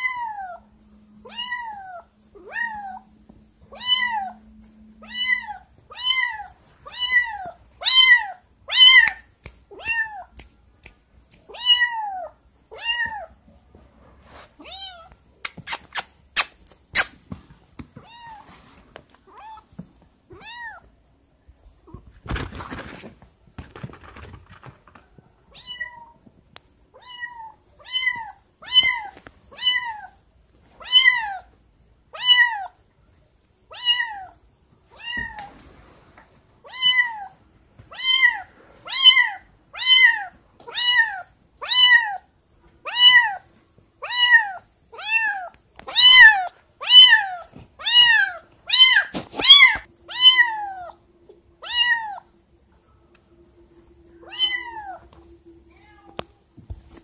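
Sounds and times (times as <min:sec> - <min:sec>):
kitten meowing: 0:44.0 - 0:51.0, 0:51.6 - 0:52.2, 0:54.2 - 0:55.0.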